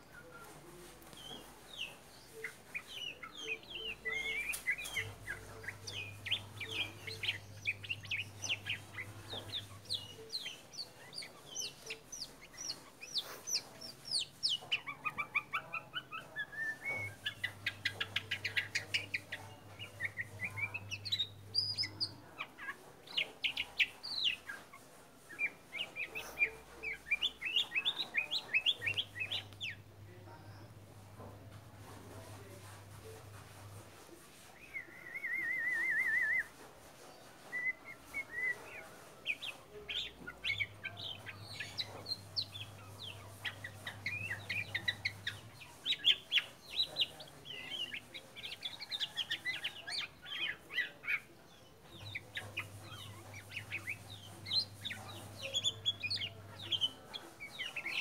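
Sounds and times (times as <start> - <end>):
bird singing: 1.1 - 29.8, 37.5 - 58.0.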